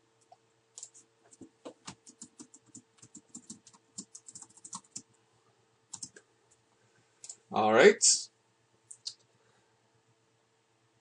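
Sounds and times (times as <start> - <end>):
computer keyboard typing: 0.2 - 5.1, 5.9 - 6.2.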